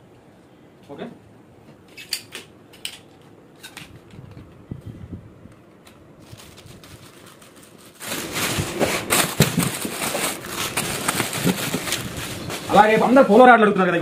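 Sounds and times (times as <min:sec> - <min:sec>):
plastic wrapping rustling and crinkling: 0:06.0 - 0:13.8.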